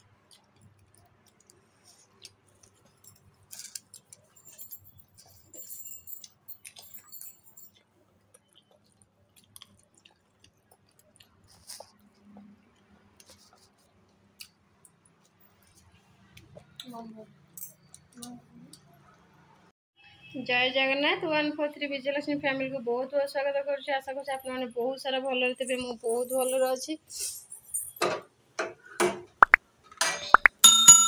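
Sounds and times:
person chewing: 0.1s - 3.0s, 7.8s - 15.9s.

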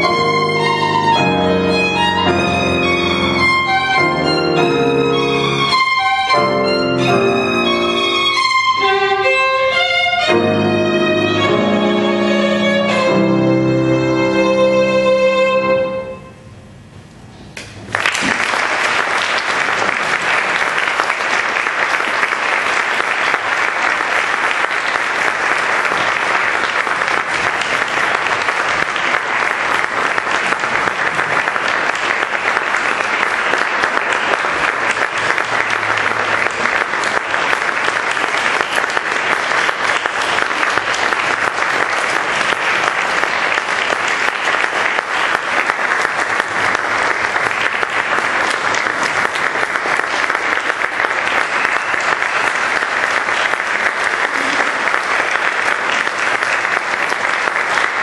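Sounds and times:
audience applause: 0.0s - 15.0s, 17.8s - 58.0s
violin and piano note: 0.0s - 16.7s.

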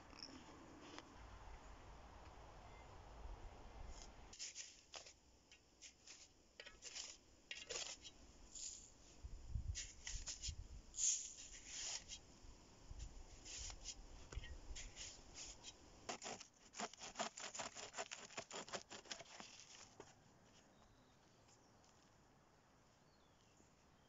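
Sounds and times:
shovel scraping sandy soil: 3.9s - 5.2s, 5.8s - 9.0s, 9.7s - 12.2s, 13.0s - 14.0s, 14.7s - 20.2s
hand saw cutting branch: 16.1s - 20.0s.

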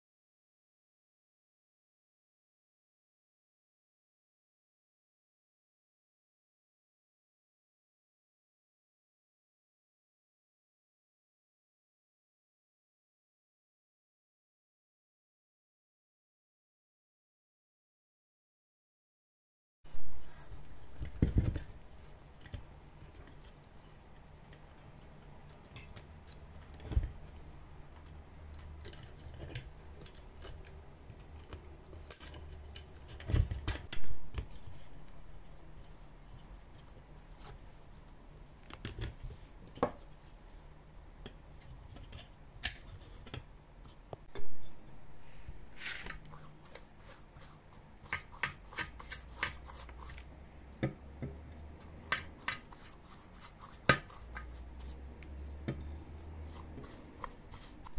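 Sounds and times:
low steady hum: 19.9s - 57.9s.

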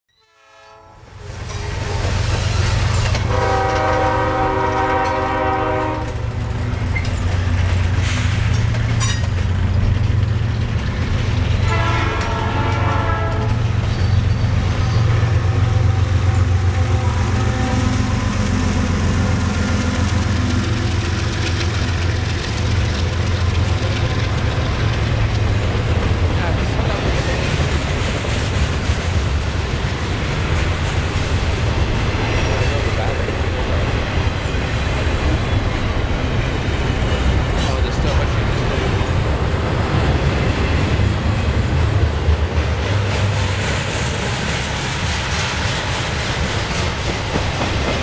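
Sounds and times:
train horn blasts: 0.2s - 1.1s, 3.2s - 6.3s, 11.6s - 13.8s, 15.2s - 20.6s
freight train rumble: 0.4s - 48.0s.

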